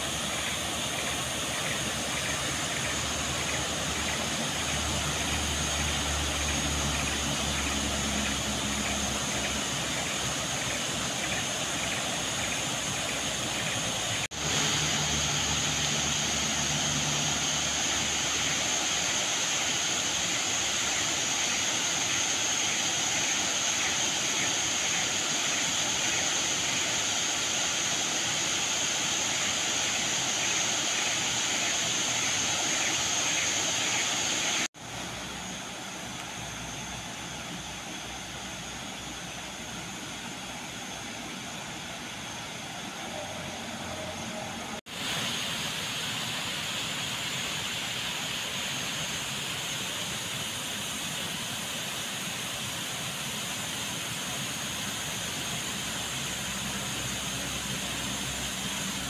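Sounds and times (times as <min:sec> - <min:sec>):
waterfall pouring into pool: 0:00.0 - 0:36.6, 0:44.8 - 0:59.0.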